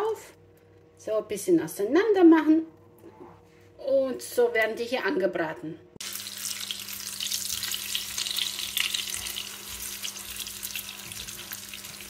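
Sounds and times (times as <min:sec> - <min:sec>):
food sizzling in hot oil: 0:06.0 - 0:12.0.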